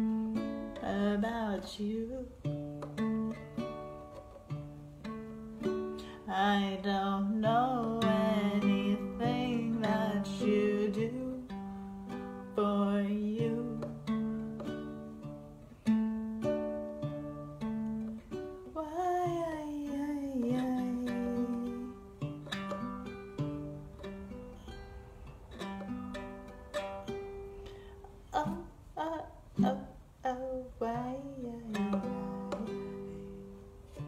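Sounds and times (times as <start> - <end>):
ukulele: 0.0 - 34.0
person singing: 0.8 - 3.8, 6.0 - 11.7, 12.5 - 14.1, 18.8 - 22.1, 28.2 - 33.6.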